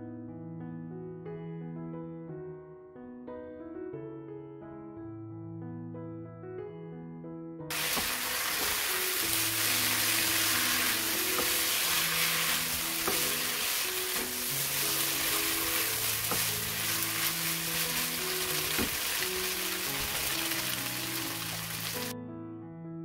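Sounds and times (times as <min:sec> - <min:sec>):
food sizzling in a wok: 0:07.7 - 0:22.1.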